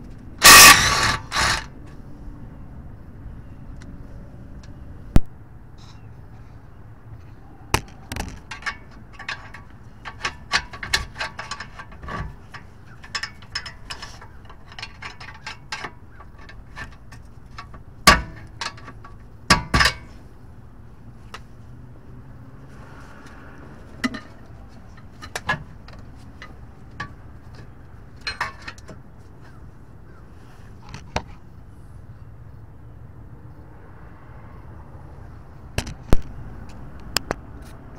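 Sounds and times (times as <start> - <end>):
sharp metal knocks: 0.4 - 1.6, 7.7 - 20.2
hand tools clinking on metal: 8.5 - 20.2.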